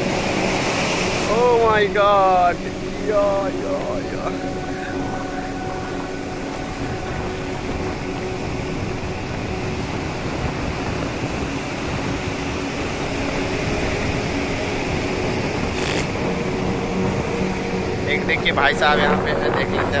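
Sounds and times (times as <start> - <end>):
surf breaking on beach: 0.0 - 5.1, 7.1 - 16.3.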